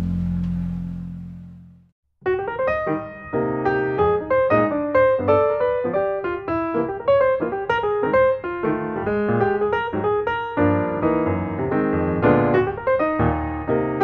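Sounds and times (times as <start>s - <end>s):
piano music: 0.0s - 14.0s.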